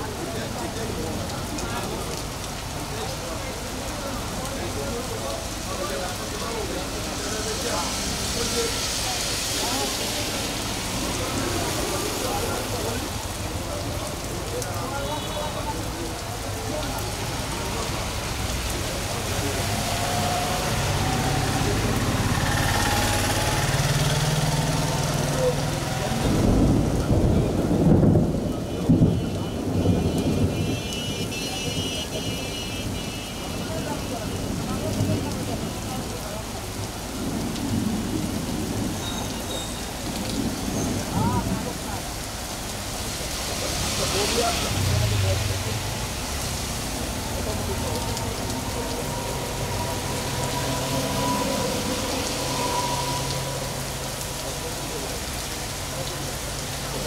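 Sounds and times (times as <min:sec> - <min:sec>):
heavy rain on street: 0:00.0 - 0:57.0
thunder rumbling: 0:26.0 - 0:31.2.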